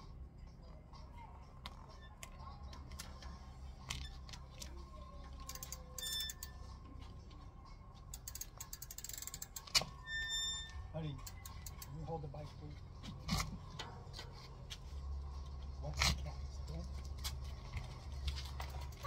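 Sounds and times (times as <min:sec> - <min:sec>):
bike clicks and ticks: 0:01.6 - 0:06.6, 0:07.9 - 0:19.0.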